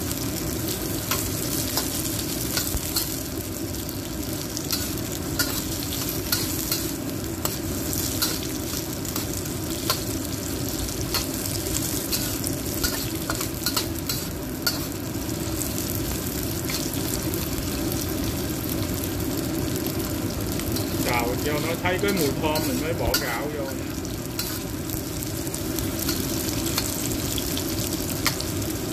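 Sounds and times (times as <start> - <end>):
aromatics sizzling in hot oil: 0.0 - 28.9
metal spatula scraping a wok: 11.1 - 15.0, 20.8 - 24.7.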